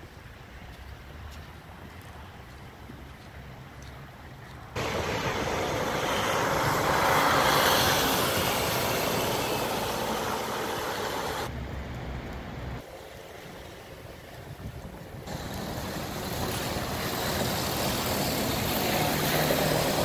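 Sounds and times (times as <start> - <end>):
vehicle passing on snowy road: 4.8 - 12.5, 15.3 - 20.0.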